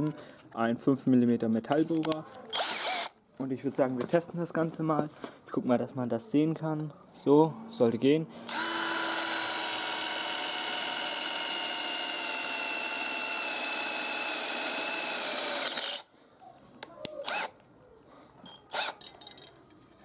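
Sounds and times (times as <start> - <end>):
cordless drill drilling into metal: 2.5 - 3.1, 8.5 - 16.1, 17.2 - 17.5, 18.7 - 19.0.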